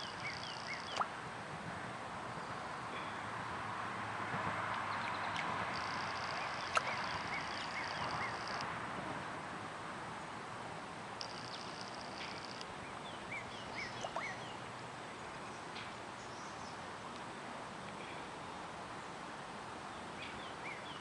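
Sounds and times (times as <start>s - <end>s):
small birds chirping: 4.8s - 8.6s, 11.2s - 16.9s.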